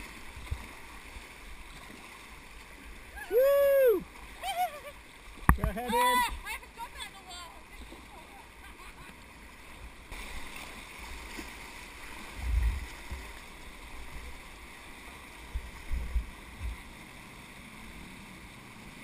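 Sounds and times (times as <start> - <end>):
whitewater rushing: 0.0 - 15.2
paddle strokes splashing: 0.0 - 17.3
dull thumps on microphone: 5.5 - 5.8.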